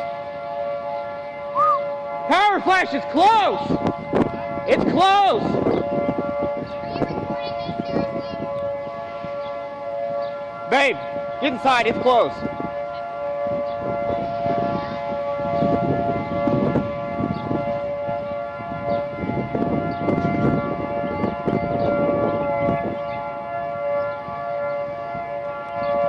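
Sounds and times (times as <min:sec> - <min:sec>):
warning siren steady tone: 0:00.0 - 0:26.0
gusty low rumble: 0:03.5 - 0:09.5, 0:10.1 - 0:24.0.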